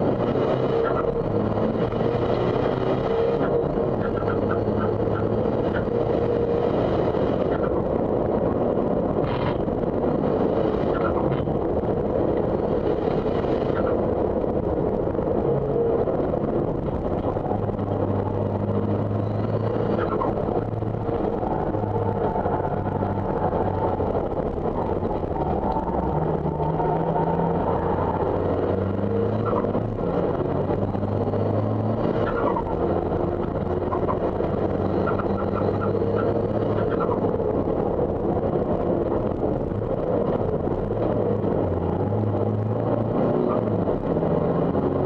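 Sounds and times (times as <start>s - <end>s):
diesel engine accelerating: 0.0s - 45.0s
road and wind noise: 0.0s - 45.0s.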